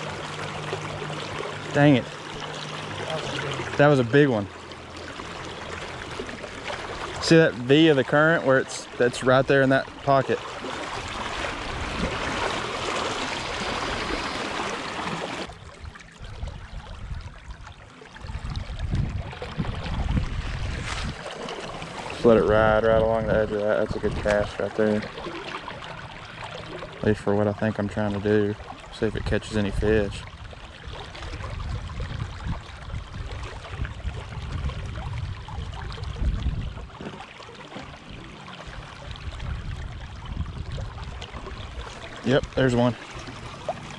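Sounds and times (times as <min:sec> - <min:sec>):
river water rushing: 0:00.0 - 0:09.1, 0:09.8 - 0:15.5, 0:41.5 - 0:43.9
low rumble: 0:18.3 - 0:24.3.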